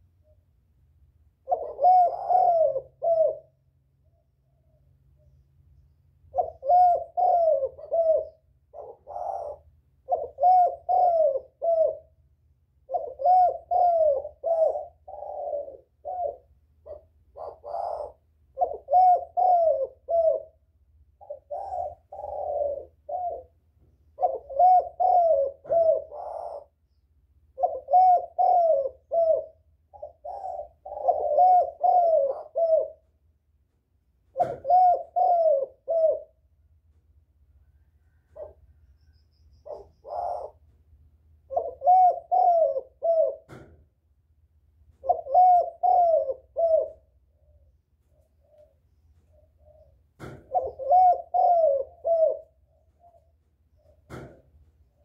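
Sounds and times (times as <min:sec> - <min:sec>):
dove cooing: 0:01.4 - 0:04.9, 0:06.3 - 0:33.2, 0:34.2 - 0:36.6, 0:37.6 - 0:43.9, 0:44.8 - 0:55.0.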